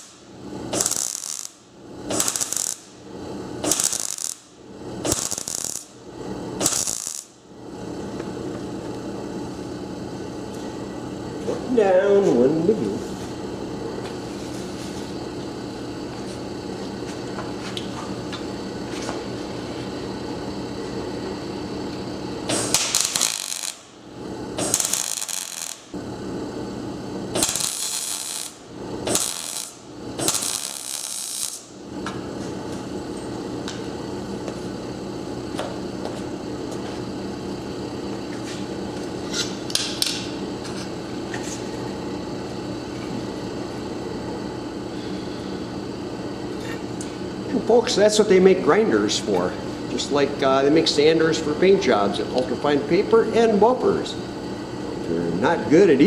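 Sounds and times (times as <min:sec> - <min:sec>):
welding arc crackling: 0:00.0 - 0:08.0, 0:21.8 - 0:34.6
steady hum: 0:00.0 - 0:56.0.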